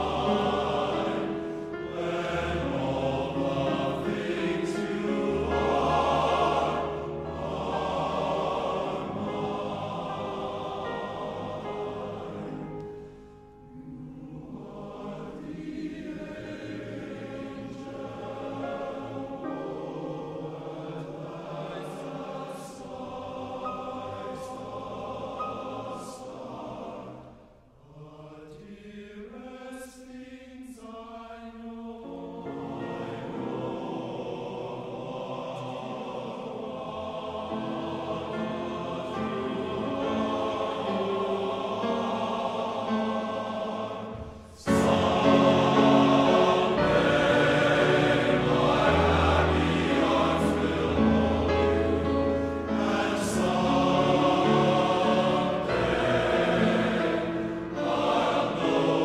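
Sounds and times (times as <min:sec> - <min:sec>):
choir singing slow piece: 0:00.0 - 0:59.0
singers breathing: 0:44.2 - 0:44.7.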